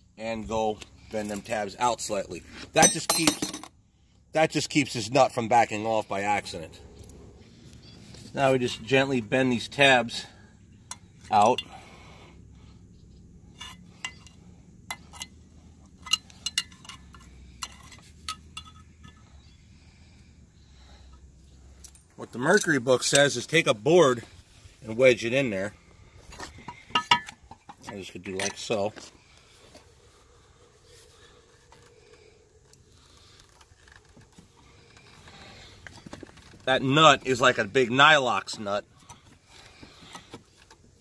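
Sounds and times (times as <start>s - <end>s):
faint steady hum: 0.0s - 41.0s
screwdriver clinking on metal: 2.8s - 3.7s, 16.0s - 19.2s, 26.7s - 28.7s.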